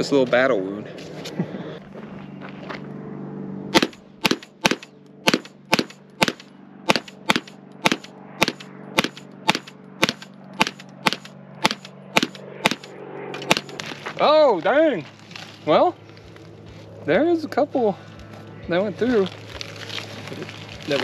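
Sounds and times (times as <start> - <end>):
steady low hum: 0.0 - 21.0
pistol shots: 3.7 - 13.8.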